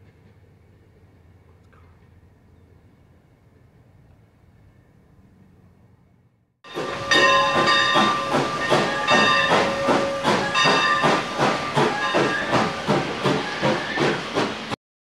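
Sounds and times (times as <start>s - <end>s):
steam whistle blasts: 6.7s - 14.3s
steam locomotive exhaust chuffing: 6.7s - 14.8s.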